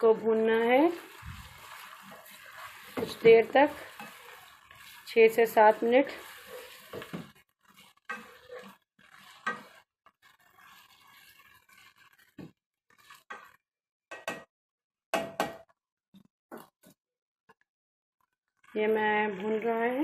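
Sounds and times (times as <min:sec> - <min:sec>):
faint sizzle: 0:00.0 - 0:13.6, 0:18.7 - 0:20.0
spatula scraping a pan: 0:00.0 - 0:13.6.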